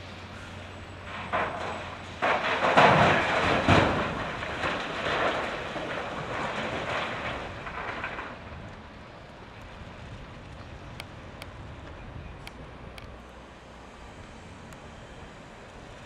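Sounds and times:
loader engine rumbling: 0.0s - 16.0s
rock crashing into steel truck bed: 1.1s - 8.5s.

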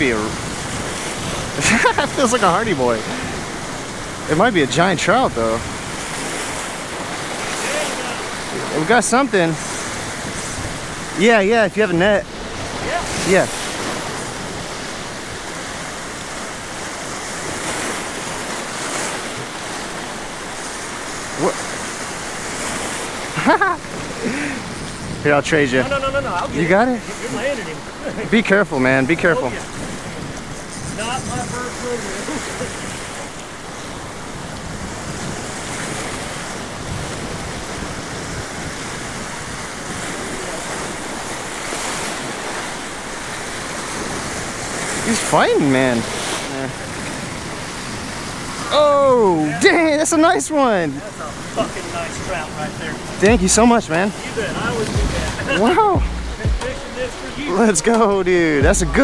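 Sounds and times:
wind buffeting microphone: 0.0s - 49.6s, 51.3s - 59.0s
waves breaking against rocks: 0.0s - 59.0s.

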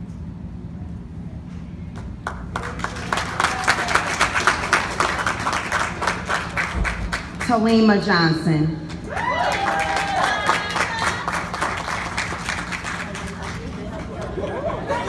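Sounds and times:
steady low hum: 0.0s - 15.0s
audience applauding: 2.2s - 7.6s, 8.9s - 15.0s.

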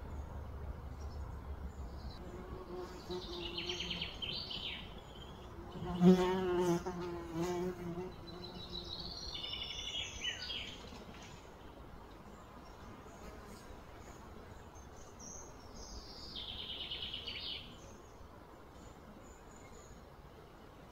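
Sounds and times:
insect buzzing: 2.2s - 9.6s.

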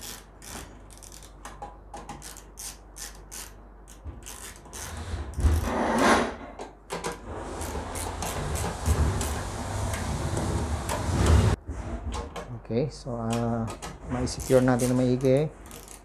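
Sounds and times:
socket wrench ratcheting clicks: 0.0s - 4.9s, 15.7s - 16.0s
tool scraping metal: 2.2s - 12.3s, 14.0s - 16.0s.

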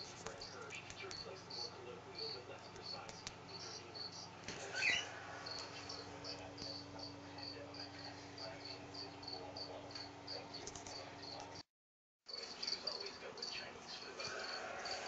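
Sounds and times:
steady low hum: 0.0s - 11.6s
cricket chirping: 0.4s - 11.6s, 12.3s - 15.0s.

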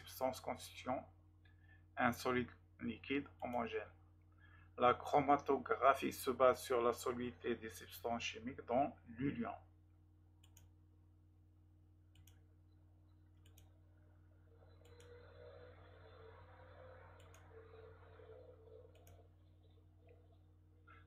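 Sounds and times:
steady low hum: 0.0s - 21.0s
faint clicks: 12.1s - 12.5s, 14.7s - 15.6s, 17.2s - 17.9s, 18.8s - 19.4s.

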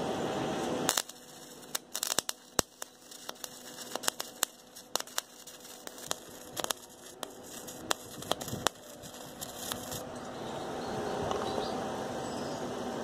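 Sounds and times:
welding arc crackling: 0.6s - 10.0s
spatter popping: 0.9s - 10.0s.

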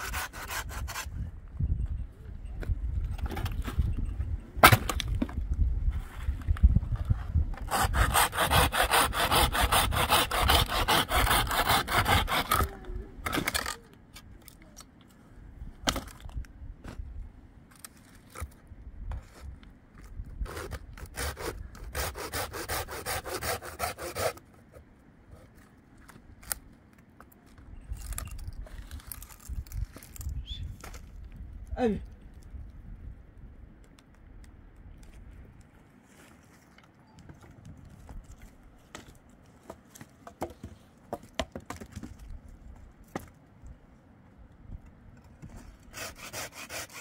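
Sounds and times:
hand saw cutting wood: 0.0s - 1.1s, 7.6s - 12.8s, 20.4s - 24.4s, 45.7s - 47.0s.

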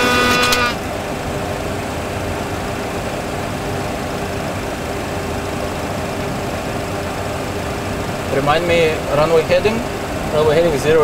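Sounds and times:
electronic tone: 0.0s - 0.9s
aircraft engine rumble and hiss: 0.0s - 11.0s.

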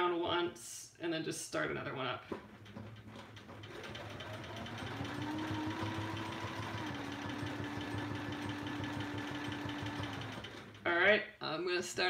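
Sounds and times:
sewing machine stitching: 2.3s - 11.0s.

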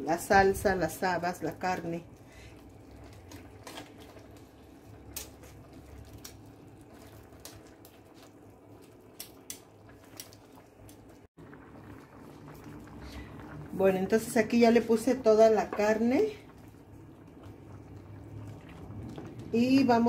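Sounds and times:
low steady hum: 0.0s - 20.0s.

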